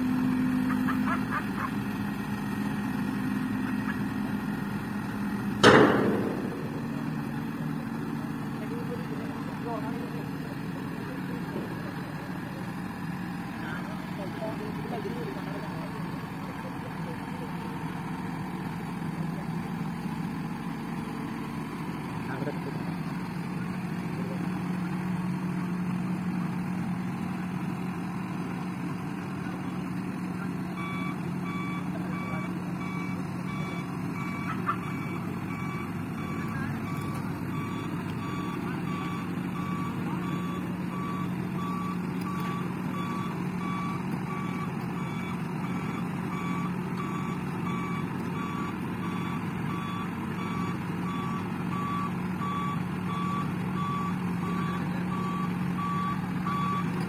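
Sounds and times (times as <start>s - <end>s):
excavator diesel engine running: 0.0s - 57.0s
sharp knock: 5.6s - 7.0s
reversing alarm beeping: 5.6s - 7.6s, 30.8s - 57.0s.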